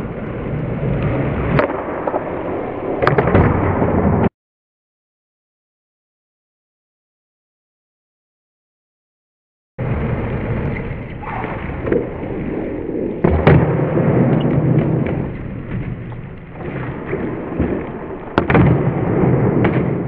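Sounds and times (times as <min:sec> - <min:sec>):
skateboard wheels rolling on concrete: 0:00.0 - 0:04.3, 0:09.8 - 0:20.0
skateboard popping and landing: 0:00.1 - 0:04.3, 0:09.9 - 0:20.0.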